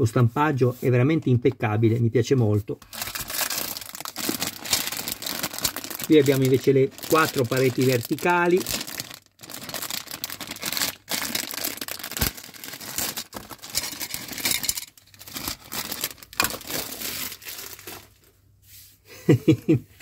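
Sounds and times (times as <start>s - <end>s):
plastic bags crinkling: 2.8s - 18.4s.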